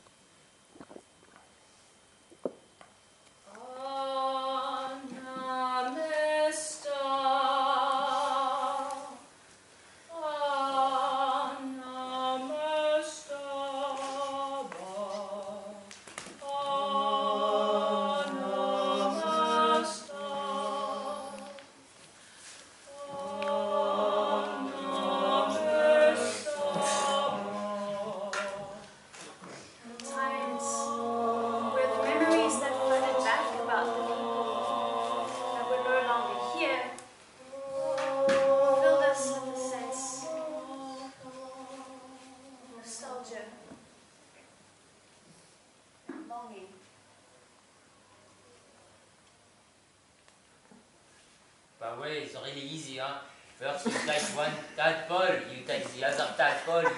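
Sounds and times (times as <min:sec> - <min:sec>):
voices singing a cappella: 0:03.5 - 0:09.3, 0:10.1 - 0:21.9, 0:22.8 - 0:43.3.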